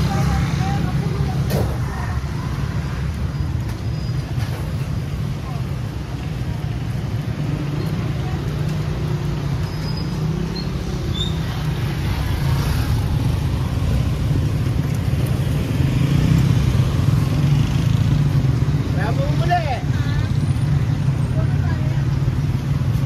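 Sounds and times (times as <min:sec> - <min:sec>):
vehicle engines rumbling: 0:00.0 - 0:23.0.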